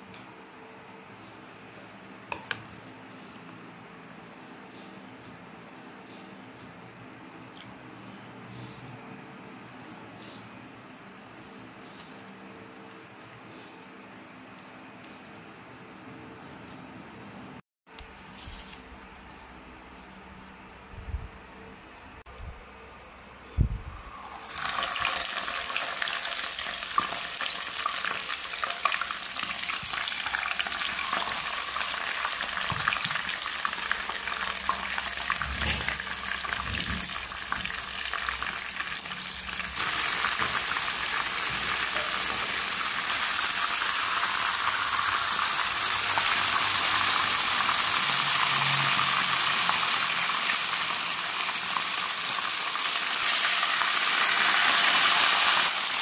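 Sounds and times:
fish sizzling in hot oil: 0:24.2 - 0:35.4, 0:36.0 - 0:56.0.

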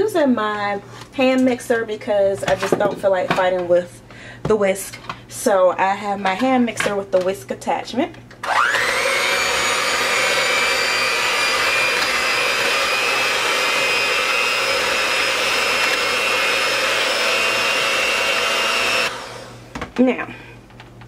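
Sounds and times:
hand mixer motor whine: 0:08.4 - 0:19.6.

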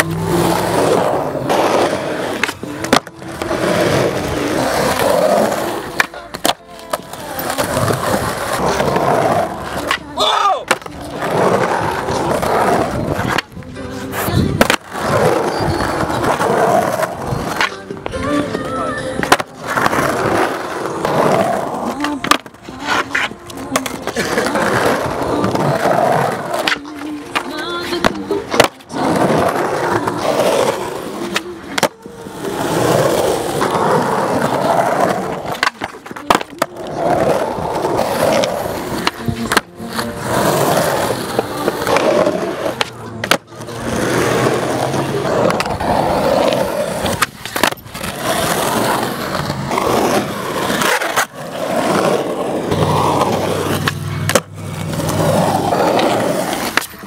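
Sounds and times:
skateboard clacks: 0:00.0 - 0:57.0
skateboard wheels rolling on concrete: 0:00.0 - 0:57.0.

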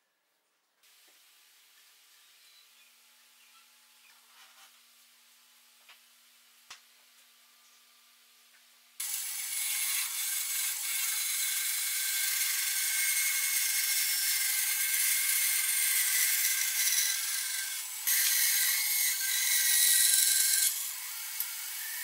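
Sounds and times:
band saw cutting wood: 0:09.0 - 0:22.0.

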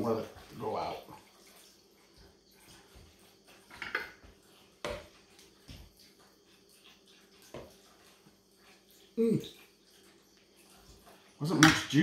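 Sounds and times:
kitchenware clicks and knocks: 0:03.7 - 0:04.2, 0:11.5 - 0:12.0.

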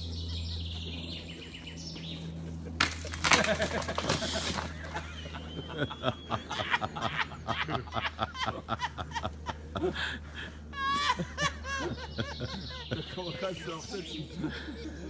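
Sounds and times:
high wavering laugh: 0:02.2 - 0:15.0
person snickering: 0:03.4 - 0:13.2, 0:14.1 - 0:15.0.

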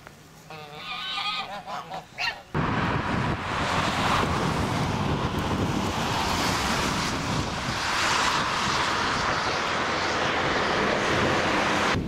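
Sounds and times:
goose honking: 0:00.5 - 0:02.5
wind buffeting microphone: 0:02.6 - 0:12.0.

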